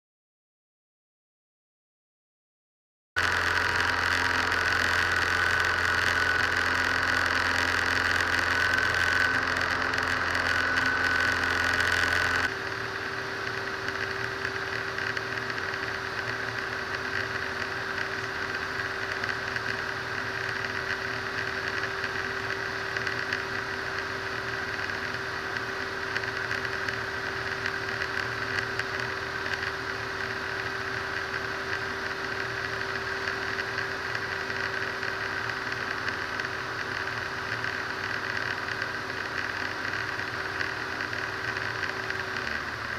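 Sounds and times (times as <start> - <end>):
light aircraft engine drone: 3.2 - 42.9.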